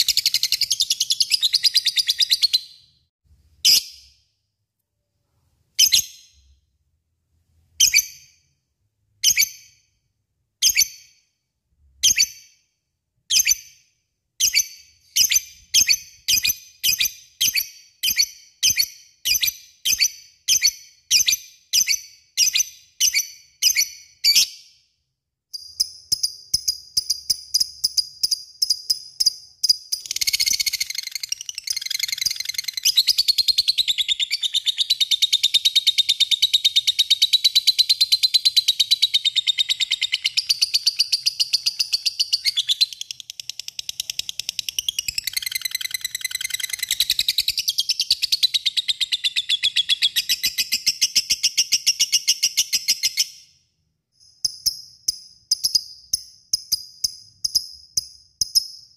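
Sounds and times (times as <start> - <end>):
lovebird chirping and chattering: 0.0 - 2.9, 25.6 - 53.4.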